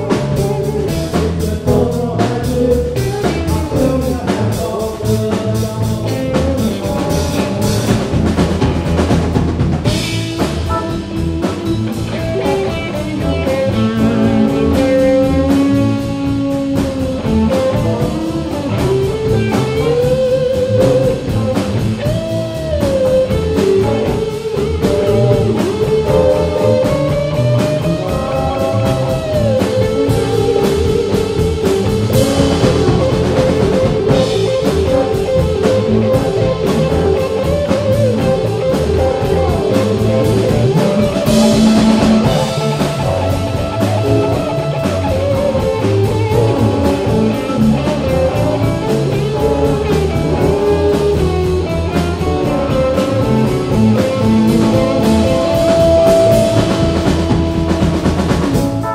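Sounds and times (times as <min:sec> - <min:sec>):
blues-rock band playing: 0:00.0 - 0:58.9
lead electric guitar bending notes: 0:00.0 - 0:58.9.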